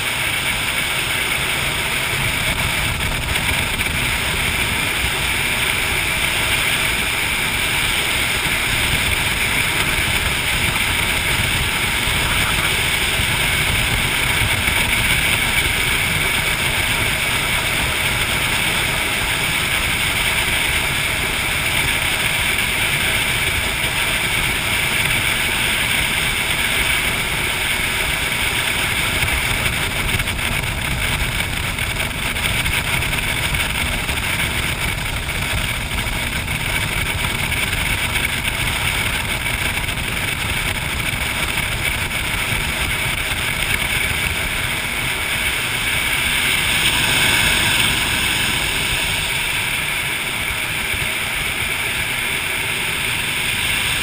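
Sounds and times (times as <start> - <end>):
jet boat engine drone: 0.0 - 54.0.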